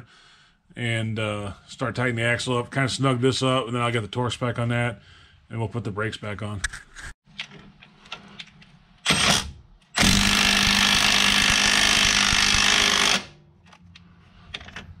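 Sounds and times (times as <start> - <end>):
impact wrench hammering: 10.0 - 13.4.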